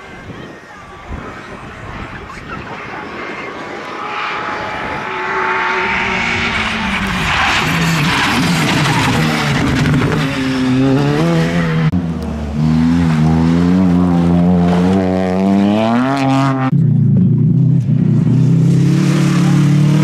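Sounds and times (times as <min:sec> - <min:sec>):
rally car engines racing: 0:00.0 - 0:20.0.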